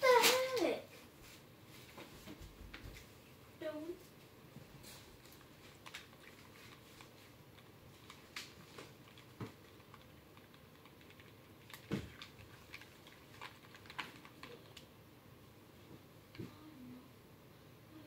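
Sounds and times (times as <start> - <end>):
spoon stirring slime: 5.1 - 14.9.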